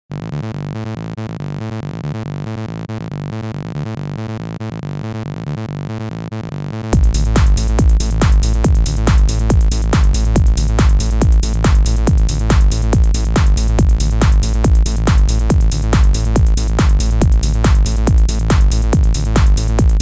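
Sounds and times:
heavy kick drum and bass: 6.9s - 20.0s
pulsing synth pattern: 7.0s - 20.0s.

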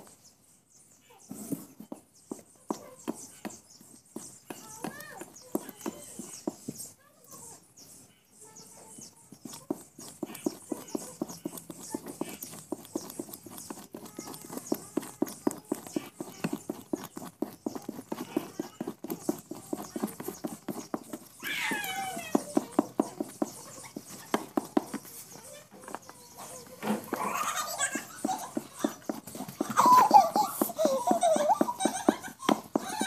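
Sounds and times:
rapid regular knocking: 1.9s - 6.8s, 9.4s - 33.0s.

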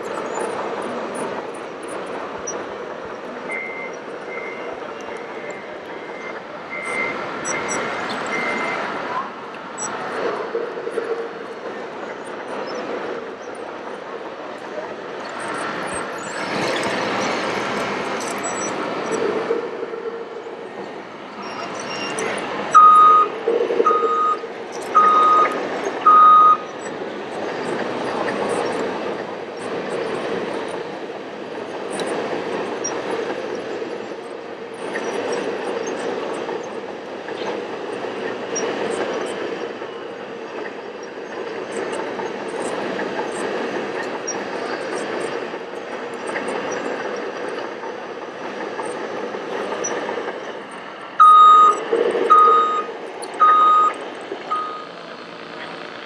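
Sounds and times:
reverse alarm beeping: 3.5s - 8.9s, 21.5s - 26.7s, 51.2s - 55.0s.

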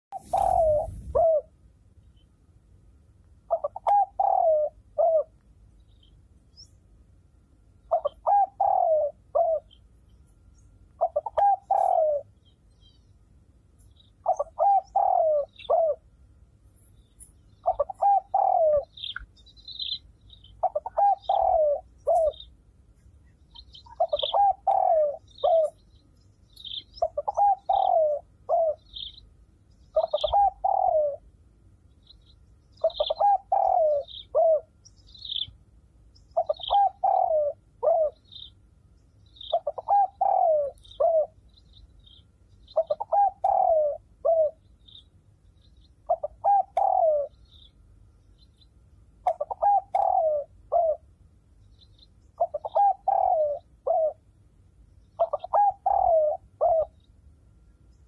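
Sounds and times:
pigeon cooing: 0.1s - 1.6s, 3.5s - 5.3s, 7.9s - 9.8s, 11.0s - 12.3s, 14.2s - 16.0s, 17.6s - 19.2s, 20.6s - 22.5s, 23.6s - 25.8s, 27.0s - 29.1s, 29.9s - 31.3s, 32.8s - 34.7s, 36.4s - 38.4s, 39.5s - 41.4s, 42.8s - 44.6s, 46.1s - 47.4s, 49.2s - 51.0s, 52.4s - 54.2s, 55.2s - 57.0s.

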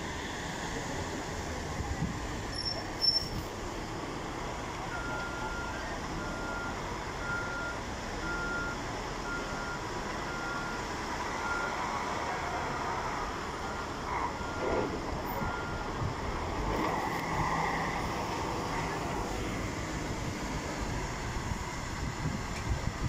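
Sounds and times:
traffic and engine noise: 0.0s - 23.0s
vehicle reversing alarm beeping: 4.8s - 12.8s, 13.4s - 16.0s.

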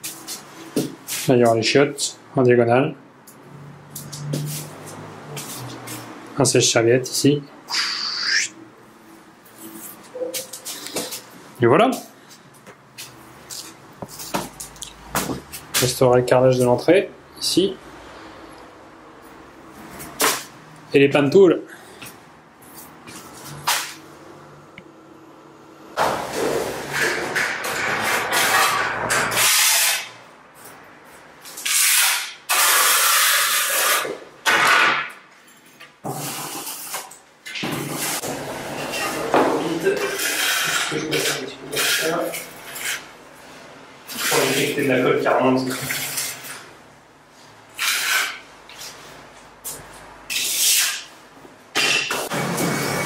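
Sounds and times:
trowel scraping tile adhesive: 26.3s - 30.1s, 40.0s - 43.1s, 44.1s - 44.8s, 47.8s - 48.4s
trowel scraping adhesive on concrete: 40.0s - 43.1s, 44.1s - 44.8s.

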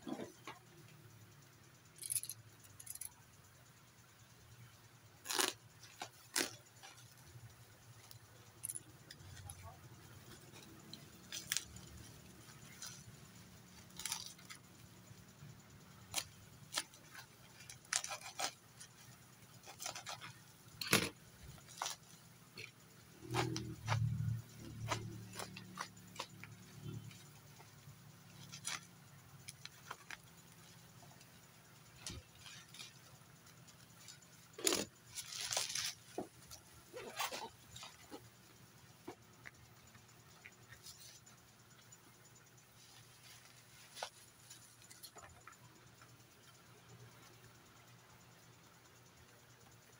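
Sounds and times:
plastic wrapping rustling and crackling: 34.0s - 38.2s.

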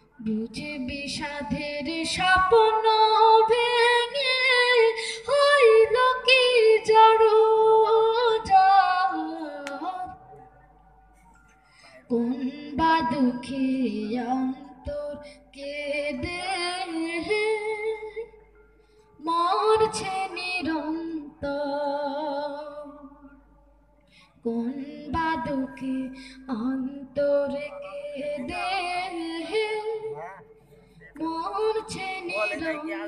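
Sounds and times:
person singing unaccompanied: 12.0s - 18.3s, 24.4s - 30.5s, 31.2s - 33.0s.

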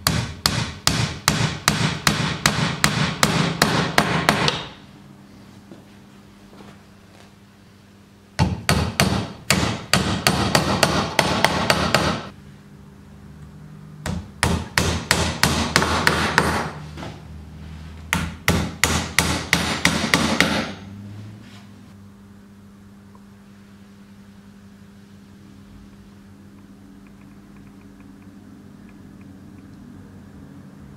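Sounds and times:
hammer striking wooden pegs: 0.0s - 4.8s, 8.4s - 12.3s, 14.0s - 16.8s, 18.1s - 20.8s.

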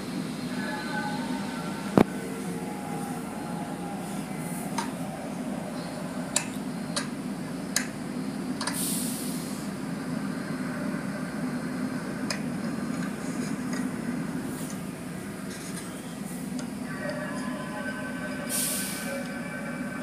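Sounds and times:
car wash machinery hum: 0.0s - 20.0s
hiss of spray: 8.8s - 9.7s, 18.5s - 19.1s.

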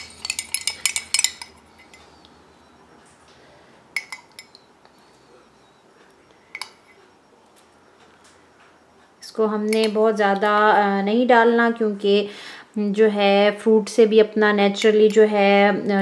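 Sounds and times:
metal spoon clinking glass jug: 0.0s - 2.2s, 4.0s - 4.7s.

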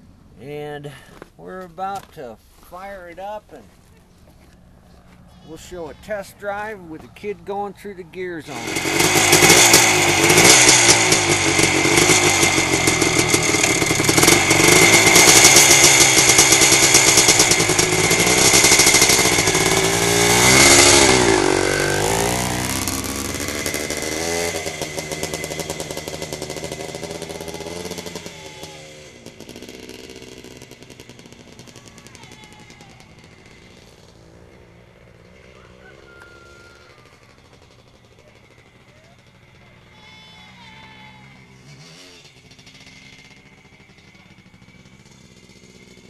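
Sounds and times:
motocross engine revving: 5.0s - 46.0s.

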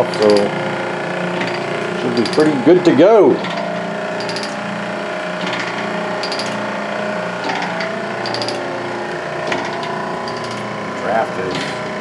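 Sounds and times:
motor and gearbox running: 0.0s - 12.0s
sharp mechanical tick: 8.2s - 8.6s.

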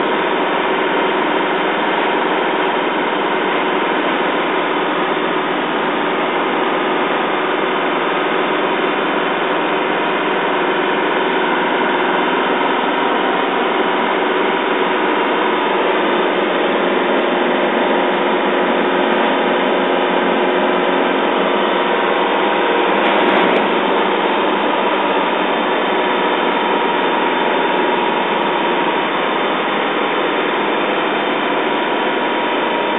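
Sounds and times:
diesel truck engine running: 0.0s - 32.9s.

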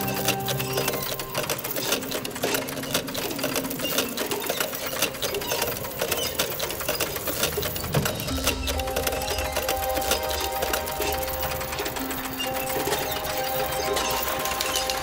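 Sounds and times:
music: 0.0s - 3.9s, 7.8s - 15.0s
clockwork mechanism clattering: 0.0s - 15.0s.

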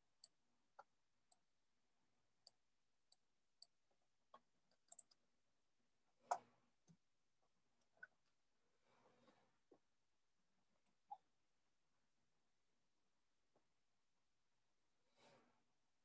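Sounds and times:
computer mouse clicks: 4.8s - 5.2s.

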